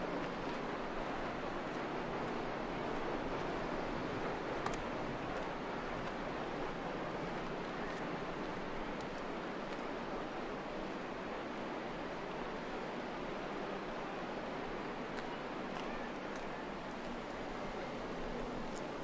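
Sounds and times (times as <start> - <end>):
sea wind: 0.0 - 19.0.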